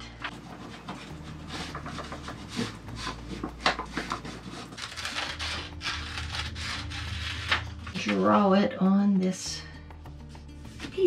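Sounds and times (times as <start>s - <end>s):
paper rustling and crinkling: 0.1s - 8.3s
scissors cutting paper: 0.2s - 8.4s.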